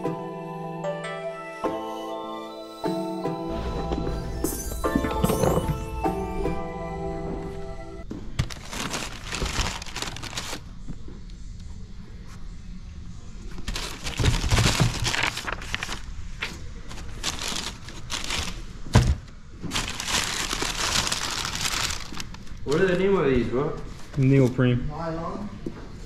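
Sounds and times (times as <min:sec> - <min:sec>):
tissue paper crinkling: 0:08.4 - 0:10.7, 0:13.5 - 0:18.7, 0:19.7 - 0:23.0.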